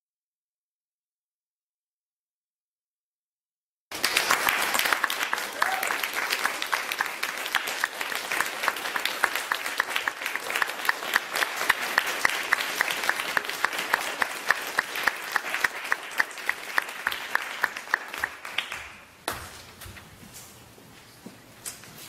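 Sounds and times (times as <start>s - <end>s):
audience applauding: 3.9s - 19.2s
nearby hands clapping steadily: 3.9s - 19.2s.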